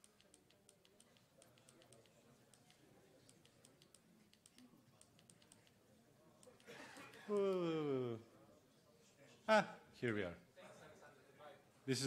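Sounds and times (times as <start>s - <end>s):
laptop keys tapping: 0.0s - 5.8s.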